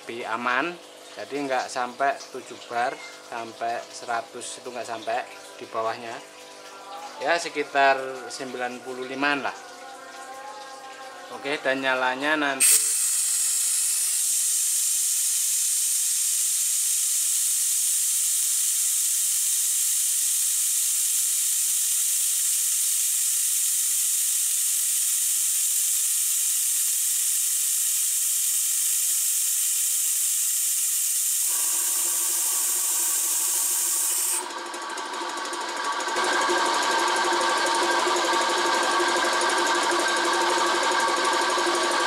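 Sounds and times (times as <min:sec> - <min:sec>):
compressor motor and pump running: 0:11.4 - 0:42.0
compressed air hissing: 0:12.6 - 0:34.4.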